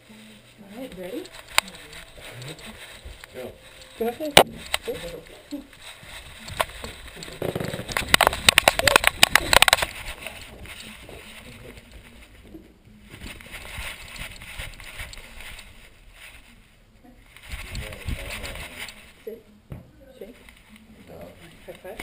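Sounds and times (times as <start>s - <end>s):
rustling: 0.0s - 19.5s, 20.1s - 22.0s
camera knocking and rattling: 6.4s - 10.4s.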